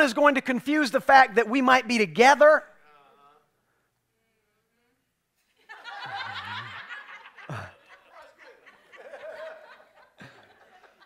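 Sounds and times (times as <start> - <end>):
people chuckling: 5.5 - 11.0.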